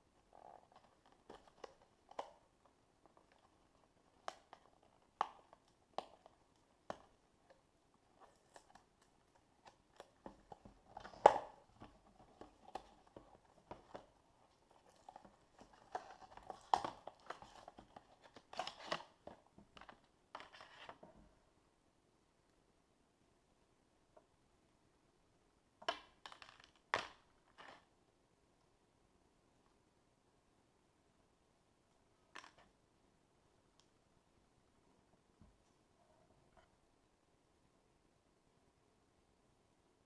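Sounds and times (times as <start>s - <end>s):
cardboard and plastic clicks and rustles: 0.3s - 21.2s.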